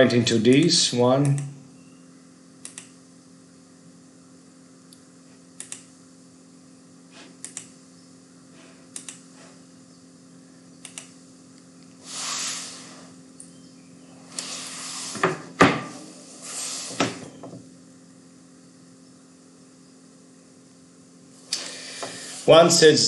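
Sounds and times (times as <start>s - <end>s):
low electrical hum: 0.0s - 23.0s
sharp computer clicks: 0.5s - 1.5s, 2.6s - 3.0s, 5.6s - 5.9s, 7.4s - 7.8s, 8.9s - 9.3s, 10.8s - 11.2s.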